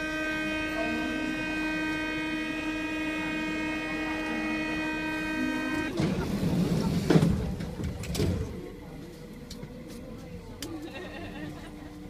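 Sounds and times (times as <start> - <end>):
train door warning buzzer: 0.0 - 6.5.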